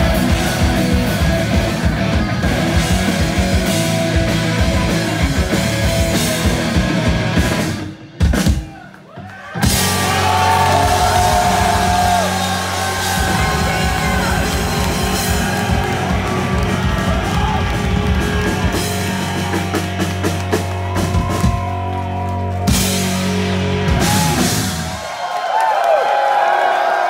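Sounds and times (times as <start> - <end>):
distorted electric guitar: 0.0 - 8.2, 9.6 - 25.0
bass guitar: 0.0 - 8.4, 9.6 - 25.0
drum kit: 0.0 - 25.2.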